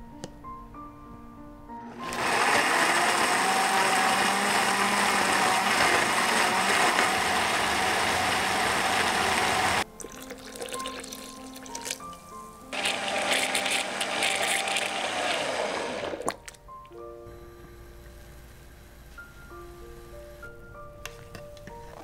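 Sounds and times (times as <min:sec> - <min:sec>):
blender grinding: 0:01.9 - 0:09.8, 0:12.8 - 0:16.3.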